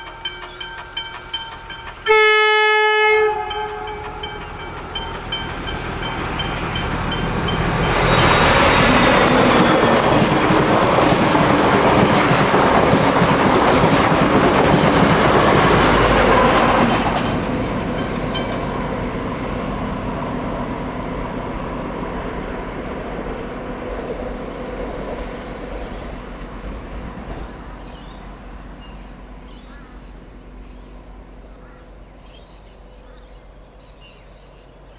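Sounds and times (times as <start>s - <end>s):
train wheels clattering on rails: 0.0s - 2.3s, 3.4s - 19.6s.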